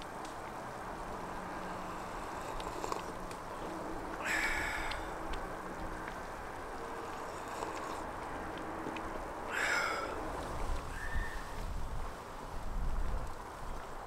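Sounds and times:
steady outdoor hiss: 0.0s - 14.0s
slurping from a mug: 7.3s - 8.0s.

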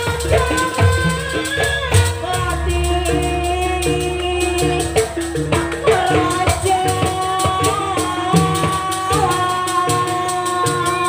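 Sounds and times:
drum strokes: 0.0s - 11.0s
wavering melody line: 0.9s - 7.3s.

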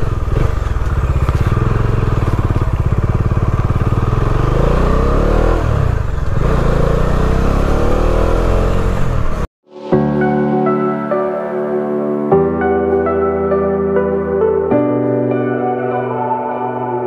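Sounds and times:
motorcycle engine running: 0.0s - 9.5s.

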